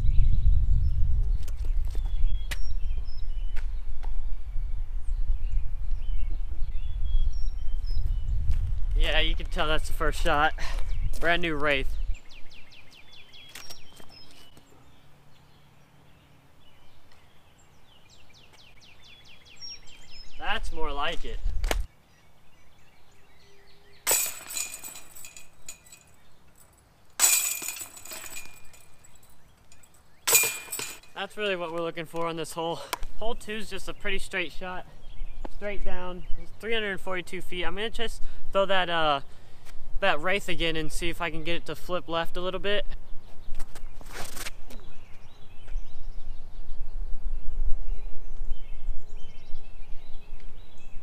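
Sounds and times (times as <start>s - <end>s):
wind noise on microphone: 0.0s - 14.3s, 18.8s - 21.9s, 42.9s - 51.0s
small birds chirping: 0.0s - 40.4s, 41.0s - 51.0s
discs hitting jangling chains: 24.1s - 31.2s.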